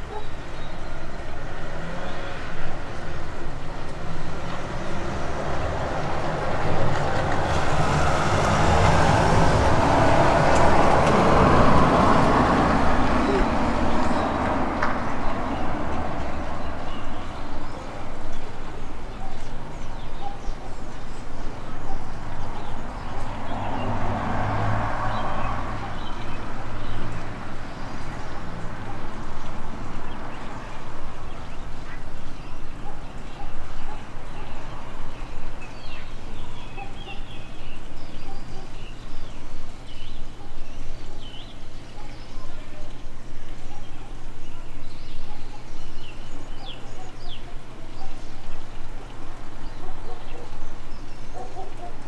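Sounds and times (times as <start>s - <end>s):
low rumble of traffic: 0.0s - 52.0s
motor vehicle passing: 1.1s - 19.1s, 20.0s - 42.0s.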